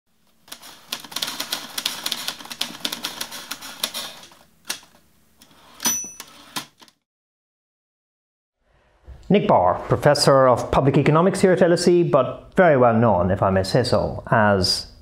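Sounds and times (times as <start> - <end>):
typewriter keys clattering: 0.4 - 4.9
typewriter bell ding: 5.8 - 6.6.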